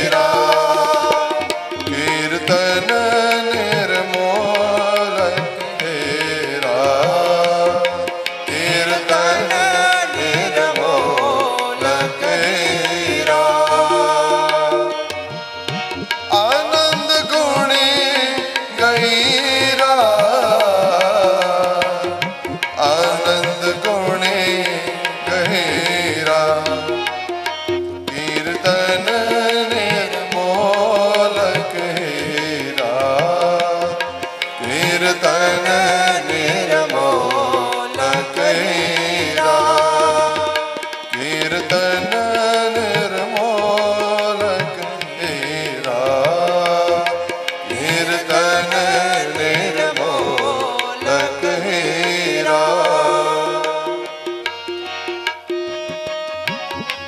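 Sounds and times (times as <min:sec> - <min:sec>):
men singing a hymn: 0:00.0 - 0:15.2, 0:28.1 - 0:54.4
harmonium chords: 0:00.0 - 0:57.0
tabla playing: 0:00.0 - 0:57.0.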